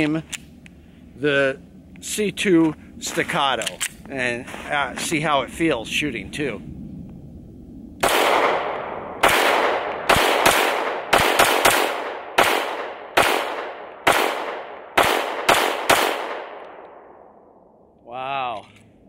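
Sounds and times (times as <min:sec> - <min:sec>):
pistol shots echoing: 0:08.0 - 0:17.1.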